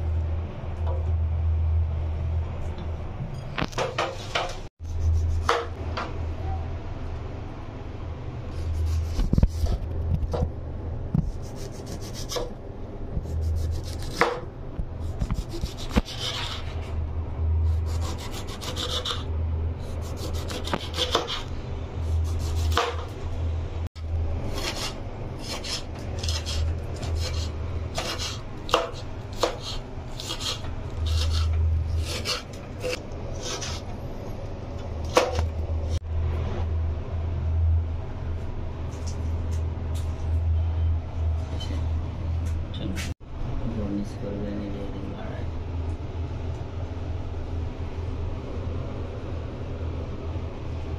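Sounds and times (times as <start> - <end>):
low steady hum: 0.0 - 50.9
knife slicing on cutting board: 15.1 - 16.8, 20.1 - 21.5, 24.5 - 33.8.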